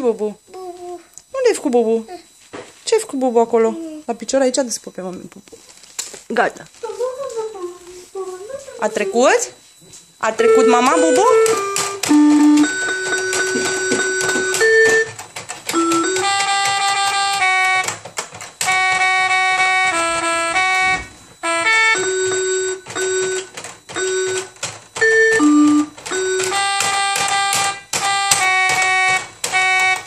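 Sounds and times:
electronic keyboard tones: 6.3s - 30.0s.

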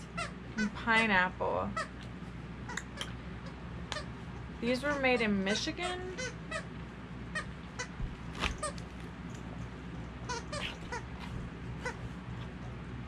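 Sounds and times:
squeaky toy squeaking: 4.8s - 6.7s.

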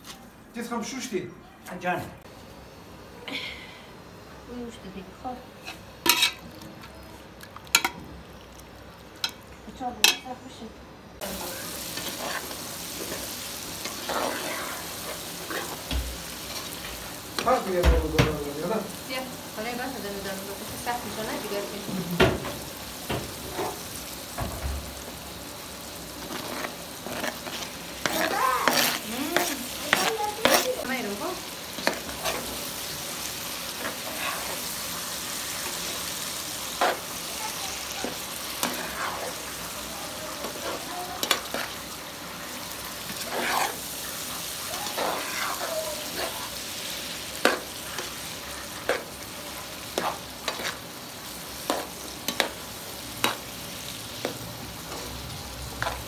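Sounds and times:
food sizzling in a frying pan: 1.8s - 56.0s
metal spoon scraping a pan: 5.6s - 6.5s, 11.9s - 17.5s, 26.2s - 31.2s, 31.8s - 32.7s, 33.7s - 34.8s, 36.7s - 37.2s, 38.0s - 39.6s, 40.4s - 41.8s, 43.0s - 46.7s, 49.9s - 50.8s, 51.6s - 52.6s.

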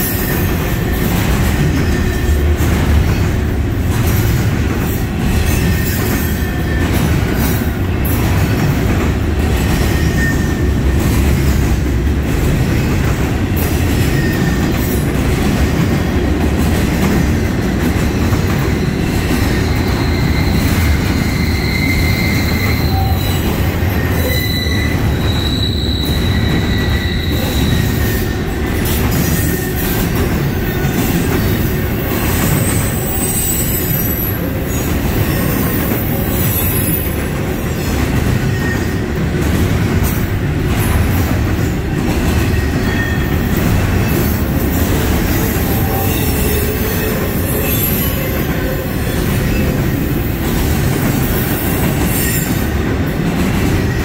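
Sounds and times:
steel wheels rumbling on rail: 0.0s - 54.0s
high-pitched wheel squeal: 18.8s - 28.3s.

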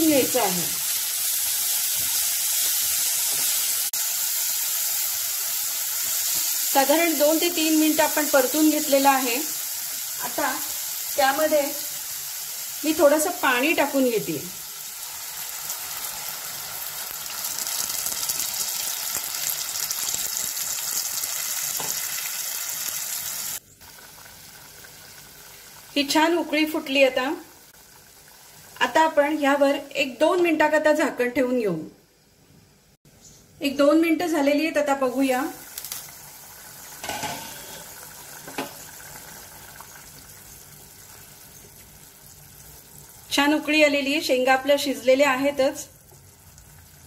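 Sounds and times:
curry sizzling in a hot pan: 0.0s - 30.4s, 34.4s - 47.0s
curry bubbling in a pan: 35.6s - 43.4s, 45.9s - 47.0s.

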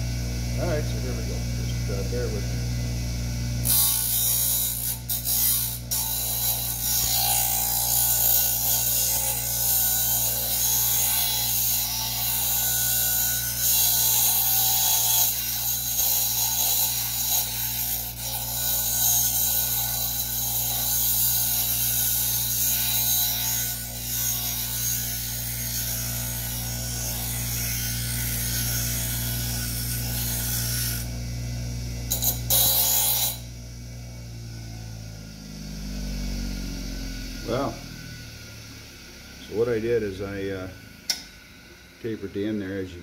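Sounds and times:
bench grinder motor hum: 0.0s - 43.0s
metal blade grinding rasp: 3.6s - 31.2s, 32.1s - 33.5s.

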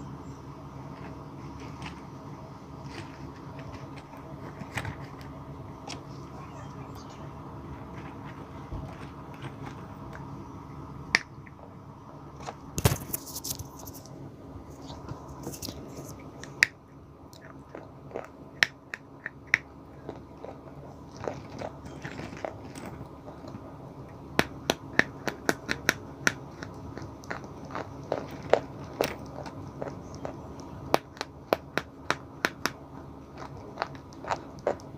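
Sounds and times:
chalk being bitten and crunched: 12.8s - 14.1s, 14.8s - 16.2s.

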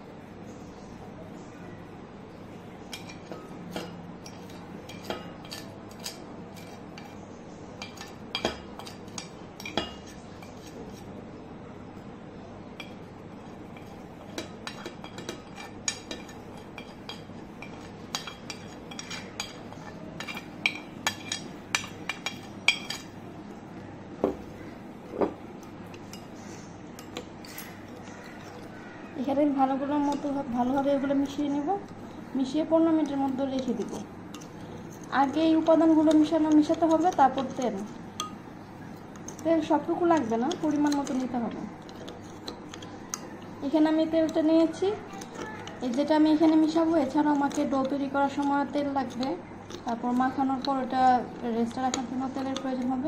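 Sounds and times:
spoon clinking against ceramic: 7.8s - 11.0s, 12.8s - 23.2s, 33.0s - 38.4s, 51.7s - 53.0s.

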